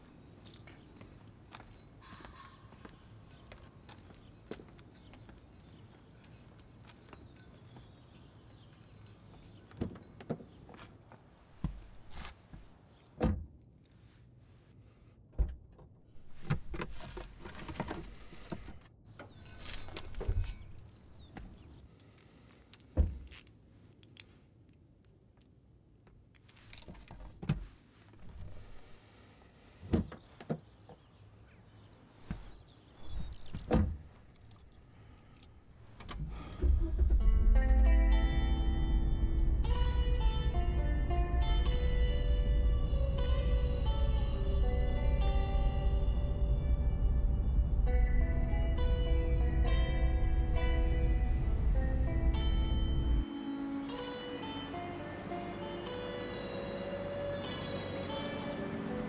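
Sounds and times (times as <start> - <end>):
music: 37.0 - 59.0.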